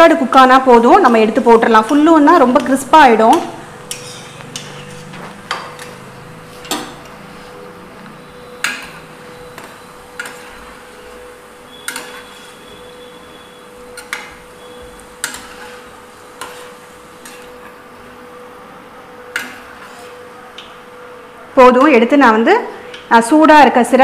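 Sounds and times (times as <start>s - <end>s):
oil sizzling: 0.1s - 21.3s
metal ladle clinking against pan: 11.8s - 12.4s.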